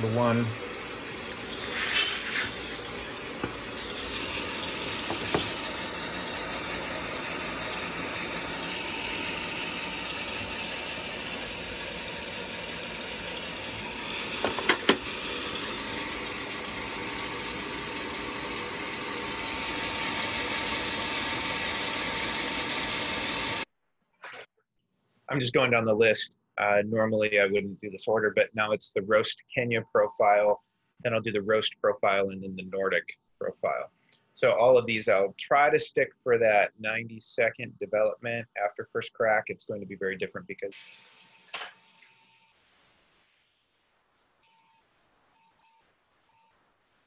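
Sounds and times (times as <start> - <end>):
coffee roaster fan rushing: 0.0 - 23.7.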